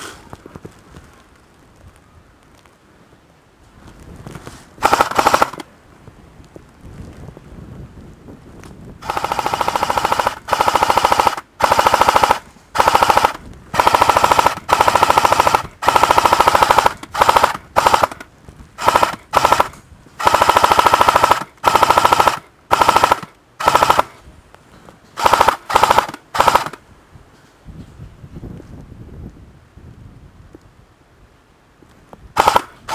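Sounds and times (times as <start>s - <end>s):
airsoft gun firing bursts: 4.8s - 5.7s, 9.0s - 24.2s, 25.2s - 26.8s, 32.4s - 32.9s.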